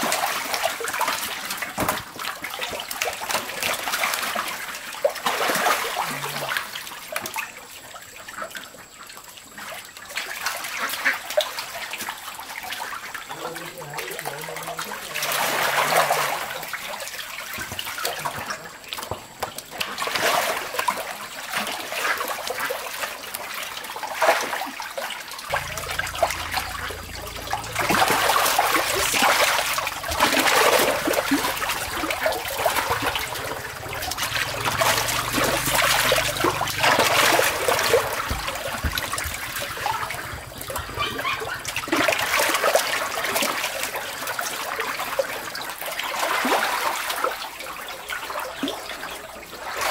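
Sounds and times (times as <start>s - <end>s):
fish thrashing in water: 0.0s - 7.6s, 9.7s - 49.9s
water splashing and pouring: 0.0s - 49.9s.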